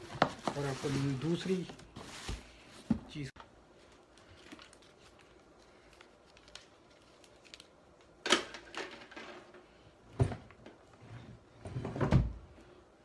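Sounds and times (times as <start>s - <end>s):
cardboard rustling: 0.0s - 3.2s.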